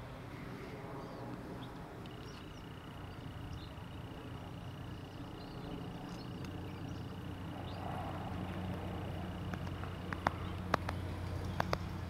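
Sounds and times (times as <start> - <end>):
distant diesel locomotive rumble: 0.0 - 12.0
bird chirps: 0.9 - 8.8.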